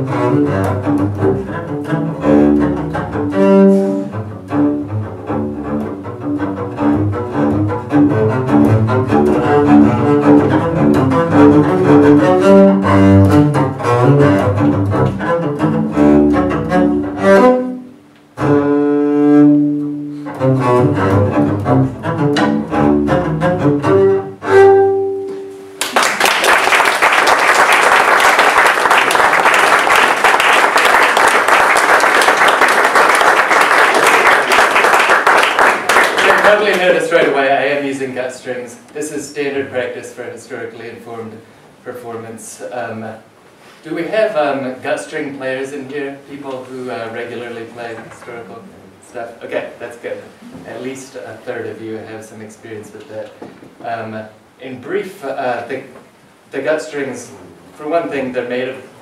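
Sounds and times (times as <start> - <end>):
bowed double bass waltz: 0.0 - 25.8
audience applauding: 25.8 - 37.0.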